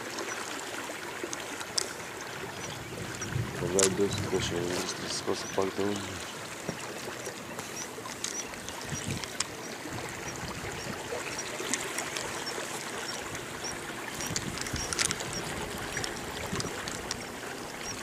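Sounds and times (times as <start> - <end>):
water lapping against hull: 0.0 - 18.0
sharp clicks: 7.2 - 17.2.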